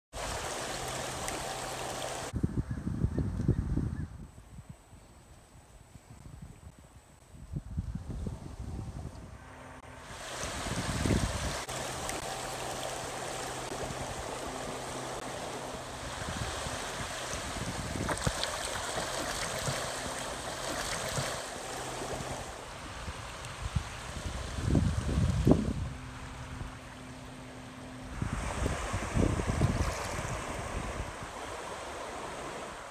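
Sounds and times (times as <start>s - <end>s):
floodwater rushing: 0.1s - 2.3s, 9.4s - 32.9s.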